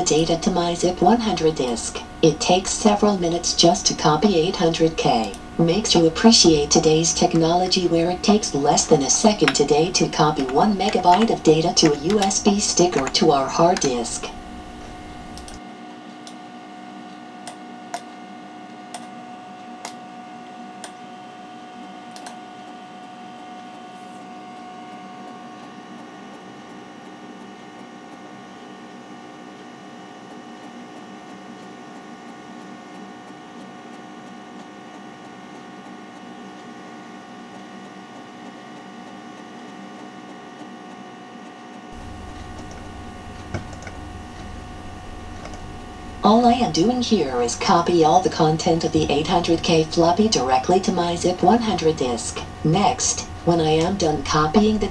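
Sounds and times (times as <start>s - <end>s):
deeper hum: 0.0s - 15.6s, 42.0s - 54.9s
computer fan and drive hum: 0.0s - 54.9s
sharp clicks: 8.2s - 15.6s.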